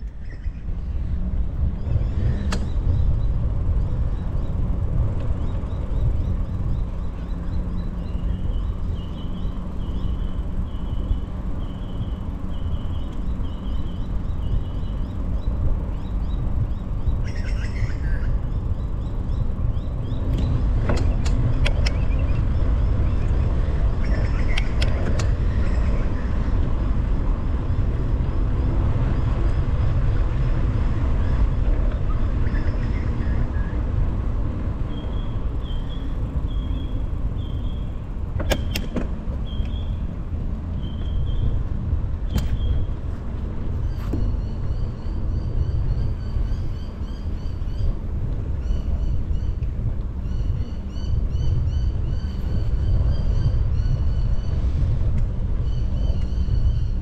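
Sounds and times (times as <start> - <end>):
bicycle rumble on road: 0.0 - 57.0
wind buffeting microphone: 0.0 - 57.0
bird chirping: 1.8 - 24.8.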